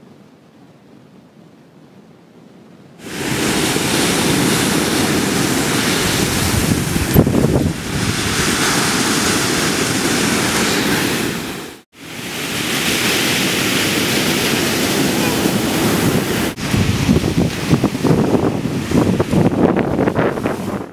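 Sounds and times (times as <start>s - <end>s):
wind buffeting microphone: 3.0s - 11.8s, 14.9s - 20.9s
surf breaking on shore: 3.0s - 20.9s.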